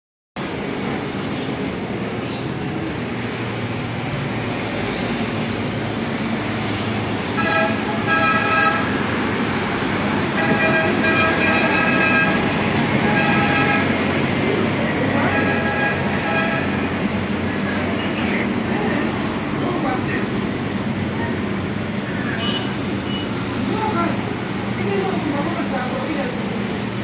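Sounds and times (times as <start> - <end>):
road traffic: 0.4 - 27.0
vehicle horns honking: 7.2 - 9.1, 10.2 - 14.0, 15.2 - 18.2, 22.2 - 23.4.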